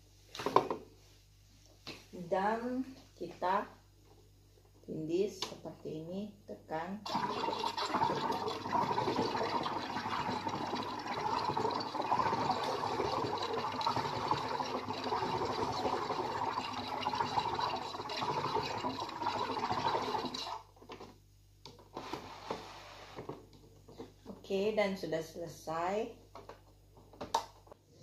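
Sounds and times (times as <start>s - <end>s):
gas rushing and water bubbling: 7.1s - 20.6s.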